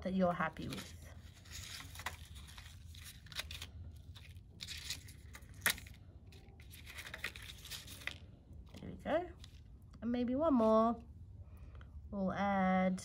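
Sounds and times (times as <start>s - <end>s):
leafy stems rustling on cardboard: 0.5s - 8.2s.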